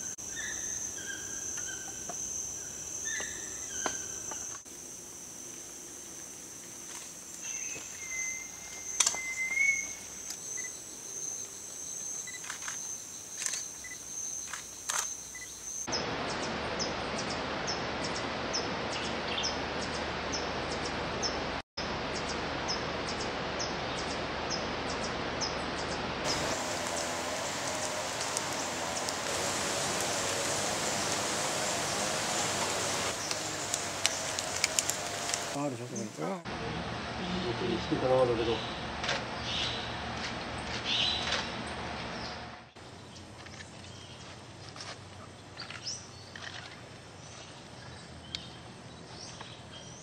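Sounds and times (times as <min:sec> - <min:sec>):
high insect trill: 0:00.0 - 0:15.9, 0:26.3 - 0:36.4
rapid high insect ticking: 0:08.7 - 0:15.9, 0:26.3 - 0:36.3
steady hiss: 0:26.2 - 0:36.5.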